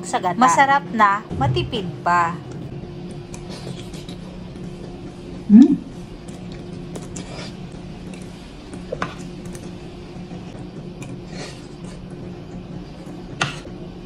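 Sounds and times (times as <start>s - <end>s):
low hum: 1.2s - 3.4s.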